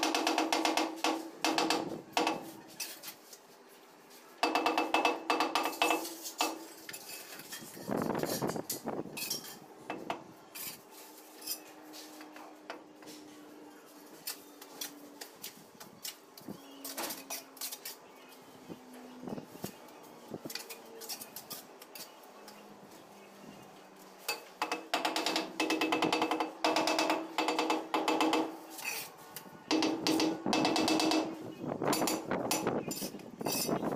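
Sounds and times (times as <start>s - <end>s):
trowel scraping on tile: 31.9s - 33.8s.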